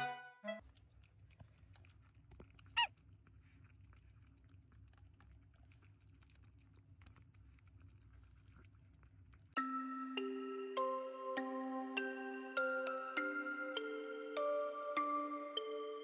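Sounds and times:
puppy chewing food: 0:00.6 - 0:09.6.

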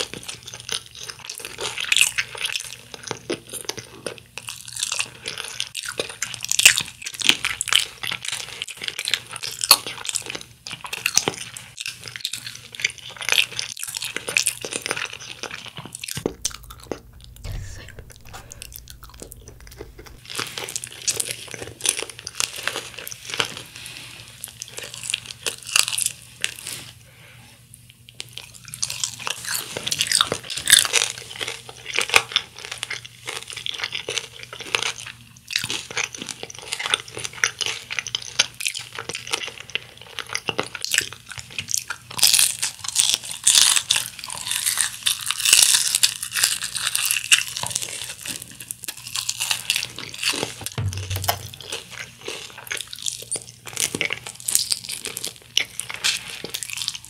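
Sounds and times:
crunchy chewing: 0:00.0 - 0:23.7, 0:53.9 - 0:57.0.

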